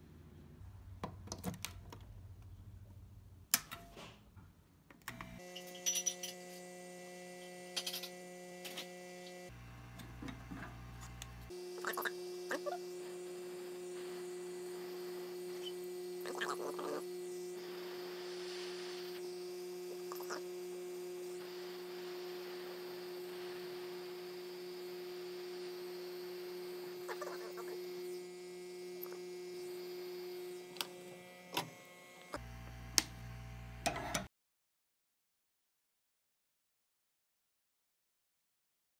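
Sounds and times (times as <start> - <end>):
hot air blower humming: 5.1 - 34.1.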